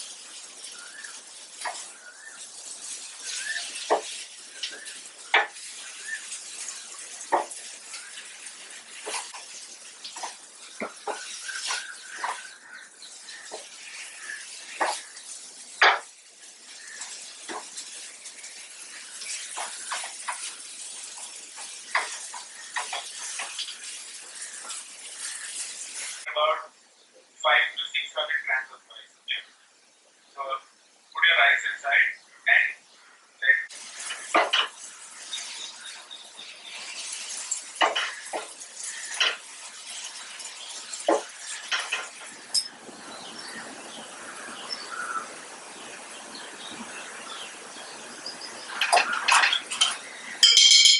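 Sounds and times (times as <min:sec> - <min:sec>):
tomatoes sizzling in a pan: 0:00.0 - 0:27.1, 0:33.0 - 0:50.9
spatula scraping and knocking pan: 0:03.7 - 0:12.6, 0:13.2 - 0:16.1, 0:16.9 - 0:26.2, 0:33.9 - 0:36.0, 0:36.7 - 0:42.8
spatula scraping pan: 0:33.8 - 0:42.7.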